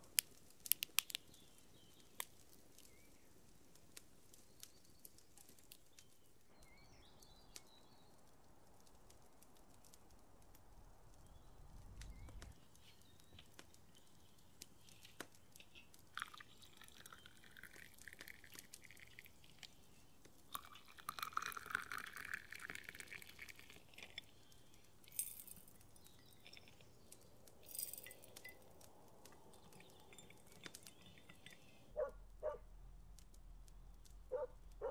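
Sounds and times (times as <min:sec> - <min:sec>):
tea pouring into glass: 0:15.7 - 0:27.0, 0:29.4 - 0:31.8.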